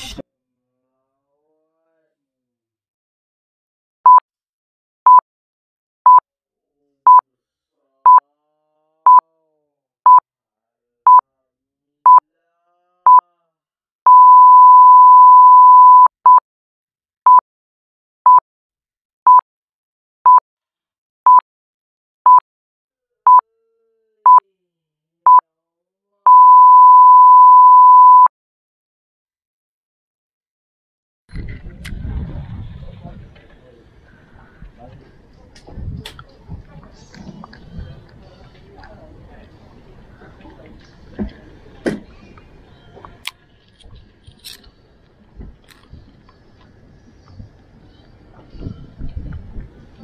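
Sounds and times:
short electronic beeps: 14.1 - 16.4, 26.3 - 28.3.

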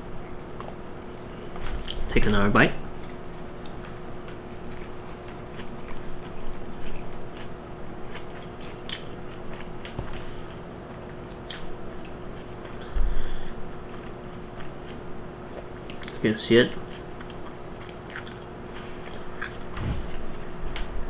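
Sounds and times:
faint steady hum: 0.0 - 21.0
chewing with wet mouth clicks: 2.9 - 7.5, 8.1 - 10.0, 11.2 - 13.0, 13.8 - 19.7.

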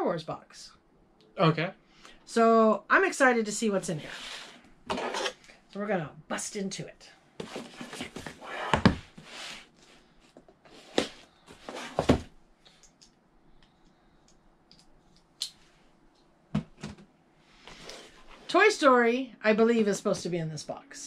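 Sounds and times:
cardboard rustling: 7.4 - 10.1, 10.7 - 12.3.

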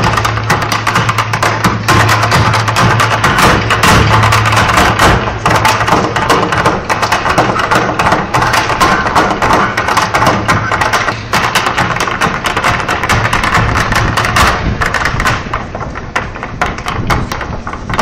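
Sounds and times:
music from loudspeaker: 0.0 - 15.1
hard shoes tapping on stage: 0.0 - 18.0.

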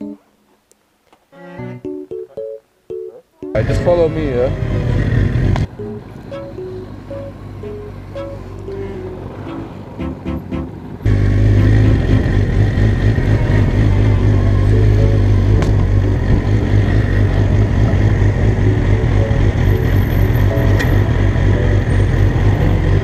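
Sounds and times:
background music: 0.0 - 0.4, 1.3 - 12.8, 13.8 - 23.0
road noise: 3.5 - 23.0
motorcycle engine running: 4.6 - 5.7, 11.0 - 23.0.

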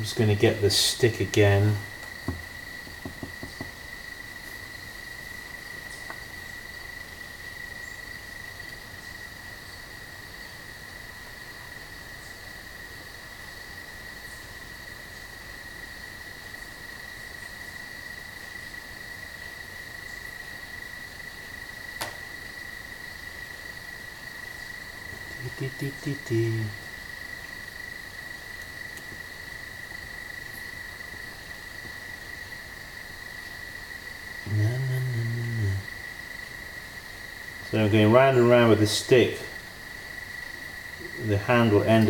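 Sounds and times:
crickets trilling: 0.0 - 42.0.

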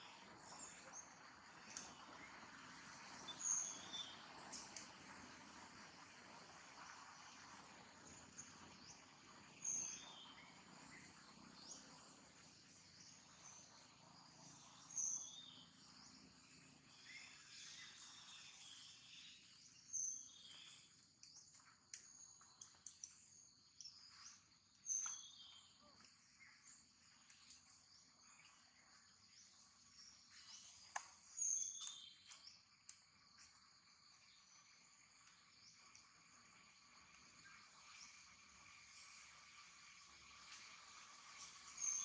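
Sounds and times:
high insect drone: 31.4 - 42.0.

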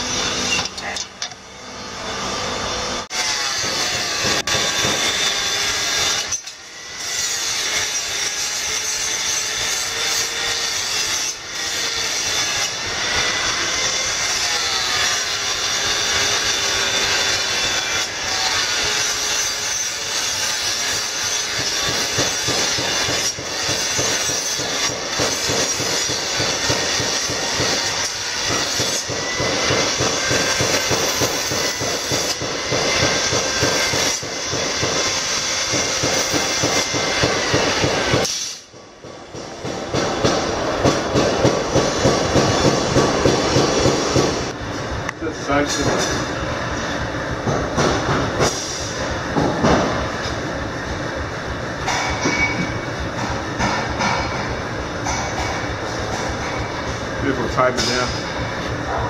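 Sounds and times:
angle grinder grinding steel: 0.0 - 38.6.

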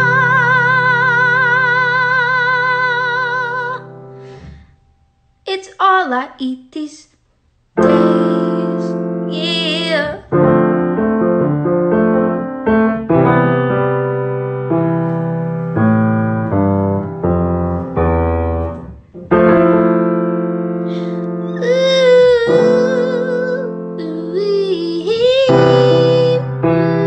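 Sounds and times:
wavering vocal line: 7.8 - 10.4, 20.9 - 27.0
electric piano chords: 7.8 - 27.0.

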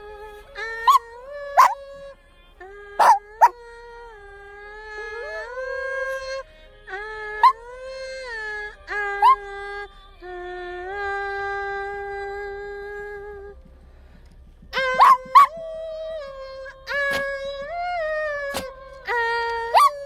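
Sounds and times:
dog howling: 0.0 - 2.1, 2.9 - 9.9, 14.7 - 20.0
dog short sharp cries: 3.0 - 3.5, 14.8 - 15.6.

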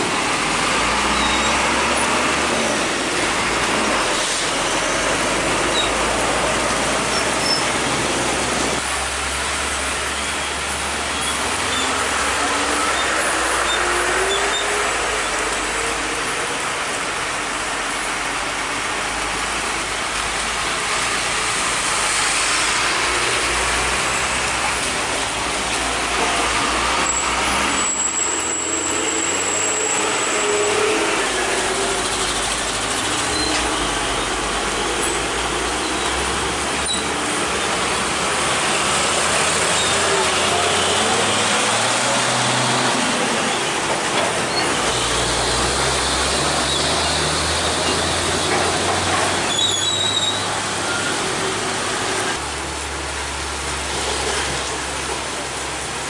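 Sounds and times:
trucks and motorcycles passing: 18.9 - 49.5.

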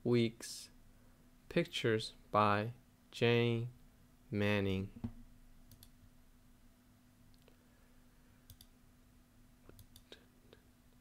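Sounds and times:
computer mouse clicks: 5.7 - 6.0, 8.5 - 8.7, 9.7 - 10.2.

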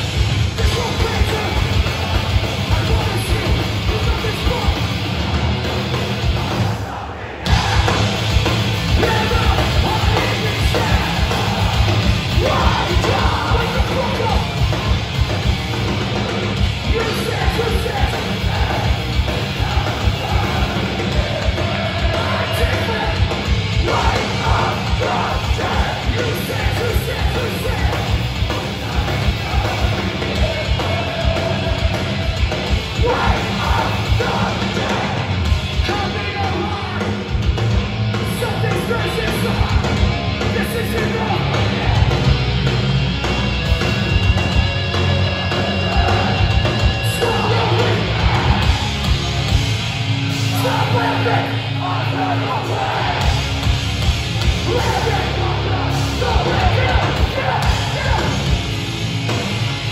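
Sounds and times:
shouted vocals: 0.0 - 37.3, 38.2 - 42.8, 43.7 - 59.9
distorted guitars: 0.0 - 59.9
fast drums: 0.0 - 59.9.

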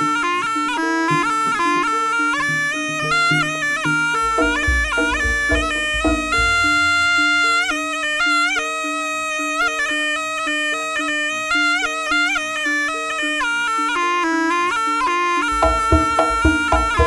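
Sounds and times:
shawm playing wavering melody: 0.0 - 17.0
low struck note: 2.5 - 8.0, 15.5 - 17.0.

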